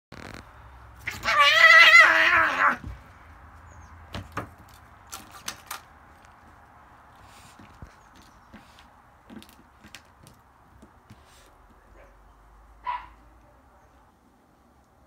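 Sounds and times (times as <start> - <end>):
cat yowling: 1.0 - 2.8.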